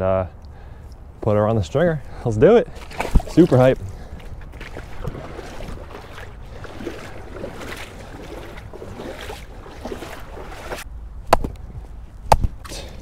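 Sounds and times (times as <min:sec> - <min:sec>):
wading steps sloshing in water: 0:02.1 - 0:10.9.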